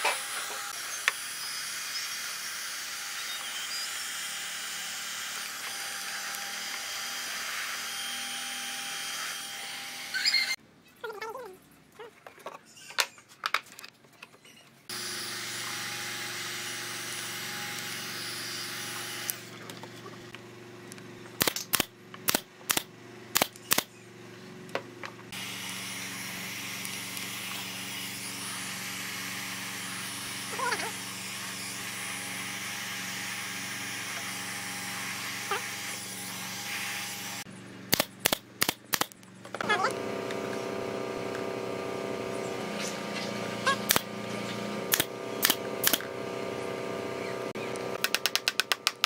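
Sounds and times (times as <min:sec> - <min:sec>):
heat gun fan whirring: 0:00.0 - 0:10.6, 0:14.9 - 0:49.0
nail gun snaps: 0:21.4 - 0:23.9, 0:37.9 - 0:39.2, 0:43.8 - 0:44.1, 0:44.9 - 0:46.1, 0:48.0 - 0:49.0.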